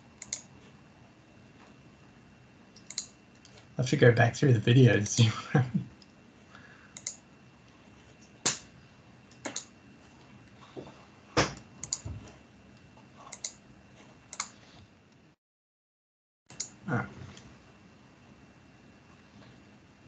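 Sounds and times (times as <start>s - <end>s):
faint room hiss: 0.0s - 15.4s
mouse and keyboard clicks: 0.2s - 0.5s, 2.8s - 3.5s, 11.8s - 12.1s, 13.3s - 13.6s.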